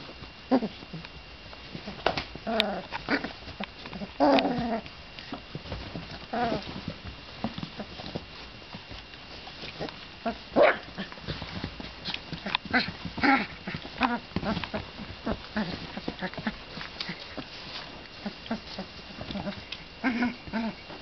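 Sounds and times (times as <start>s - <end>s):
puppies whining and yelping: 2.5s - 4.9s, 12.3s - 21.0s.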